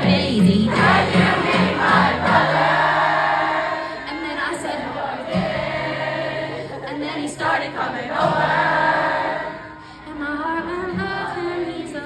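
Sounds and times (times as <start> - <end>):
woman singing into microphone: 0.0 - 2.3, 6.8 - 12.0
acoustic guitar: 0.0 - 12.0
crowd singing along: 0.0 - 12.0.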